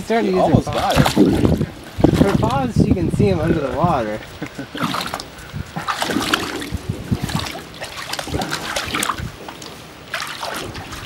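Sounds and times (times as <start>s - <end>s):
dog splashing in water: 0.6s - 2.6s, 4.7s - 11.0s.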